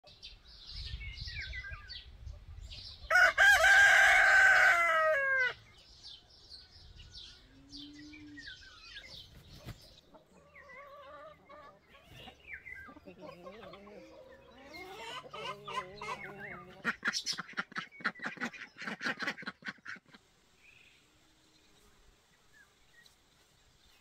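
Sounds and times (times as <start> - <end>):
small birds chirping: 0.0 - 3.2, 5.4 - 24.0
rooster crowing: 3.1 - 5.6
hens clucking: 9.3 - 20.3.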